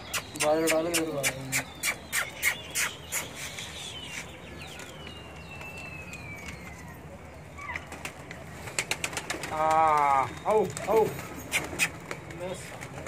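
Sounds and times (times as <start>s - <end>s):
pigeons cooing: 8.7s - 12.2s.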